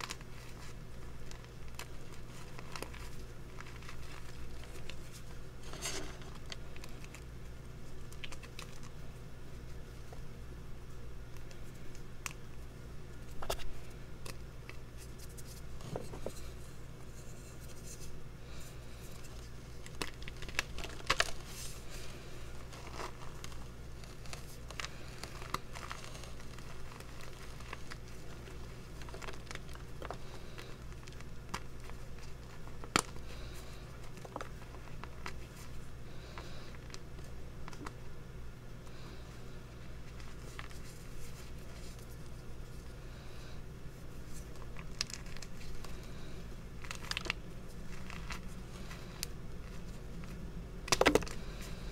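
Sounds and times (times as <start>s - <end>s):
steady low hum: 0.0s - 51.9s
chalk pieces snapping: 8.1s - 9.0s.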